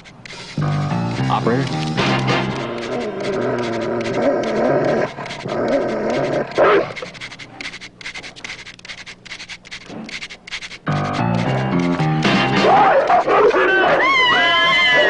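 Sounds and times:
dog panting and snuffling: 0.0s - 1.0s, 1.6s - 12.0s
dogs whining and growling: 2.4s - 7.6s, 12.6s - 15.0s
dog bark: 6.6s - 7.0s, 12.7s - 14.0s.

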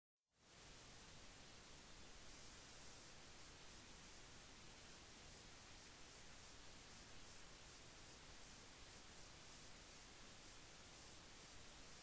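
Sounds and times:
faint steady hiss: 0.3s - 12.0s.

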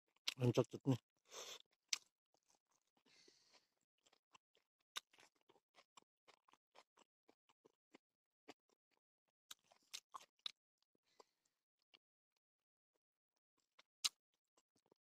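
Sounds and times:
wet chewing clicks and smacks: 1.6s - 11.3s, 13.6s - 15.0s.

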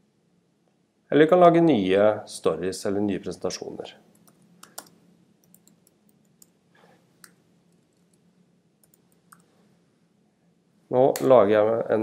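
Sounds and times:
faint low hum: 0.0s - 12.0s
typing on computer keyboard: 4.2s - 6.5s.

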